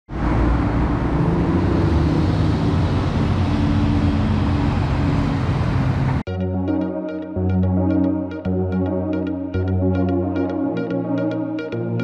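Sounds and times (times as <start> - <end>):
cars driving past: 0.1 - 6.2
engine hum and tyre noise: 0.1 - 6.3.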